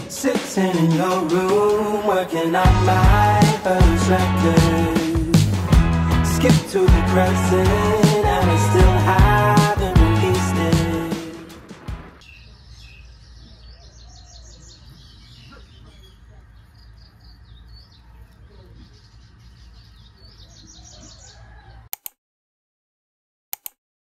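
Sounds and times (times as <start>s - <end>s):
small birds chirping: 12.2s - 21.9s
sharp clicks: 21.9s - 22.2s, 23.5s - 23.8s.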